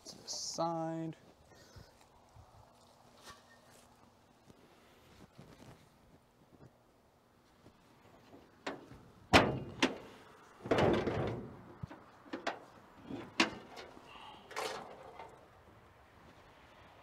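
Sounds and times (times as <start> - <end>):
metal clunks and knocks: 8.2 - 15.4
metal hood scraping creak: 8.2 - 15.4.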